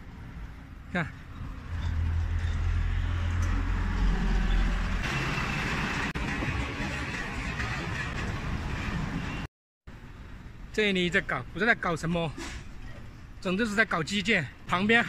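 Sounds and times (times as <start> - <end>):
road traffic noise: 0.0 - 15.0
heavy truck rumbling past: 1.6 - 9.5.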